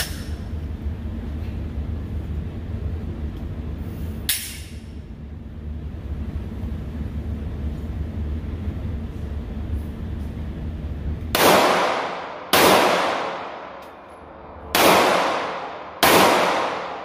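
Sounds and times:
steady low rumble: 0:00.0 - 0:17.0
gunshot: 0:11.4 - 0:13.6, 0:14.7 - 0:17.0.

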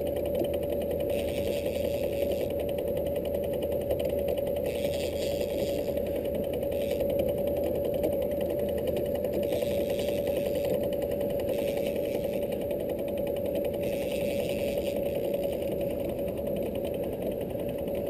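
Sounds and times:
outboard motor running: 0:00.0 - 0:18.0.

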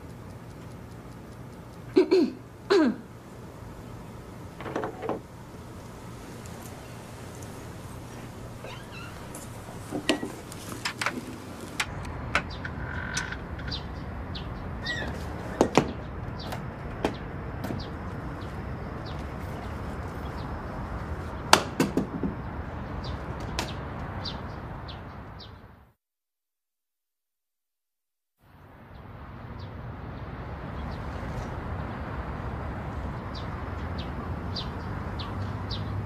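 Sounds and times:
background hiss: 0:00.0 - 0:12.1
sharp knocks and clicks: 0:04.6 - 0:05.2.

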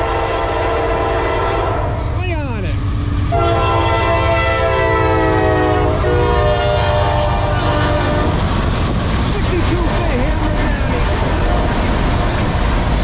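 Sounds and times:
locomotive air horn chord: 0:00.0 - 0:02.0, 0:03.3 - 0:08.4
diesel locomotive rumble: 0:00.0 - 0:13.0.

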